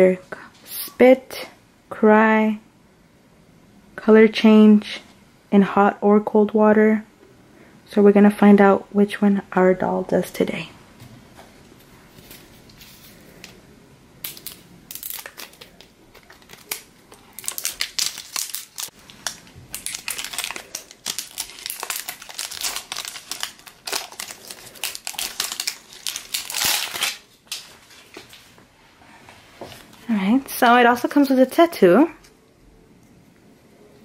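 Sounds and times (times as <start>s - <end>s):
wrapping crinkling: 14.2s - 28.6s.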